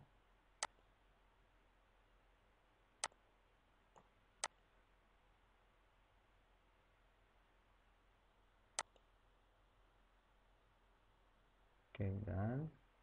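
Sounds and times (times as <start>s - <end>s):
computer mouse clicks: 8.8s - 9.1s.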